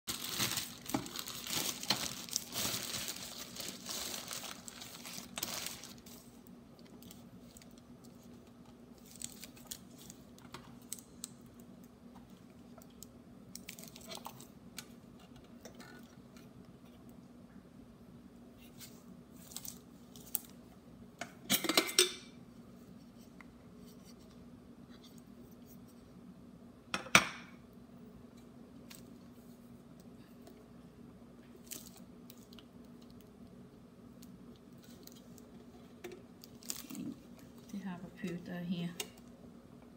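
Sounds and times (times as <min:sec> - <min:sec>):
plastic bag rustling: 0:00.1 - 0:10.4.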